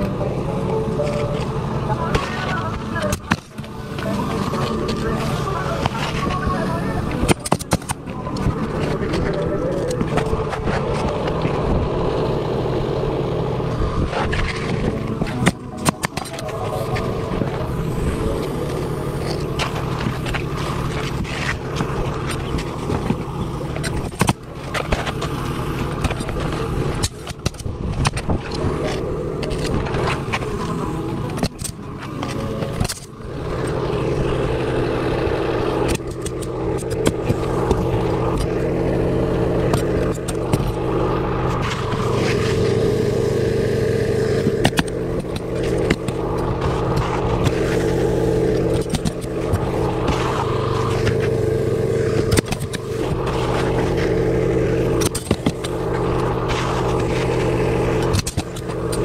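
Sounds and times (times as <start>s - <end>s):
machine drone: 0.0s - 59.0s
shingles scraping: 14.1s - 59.0s.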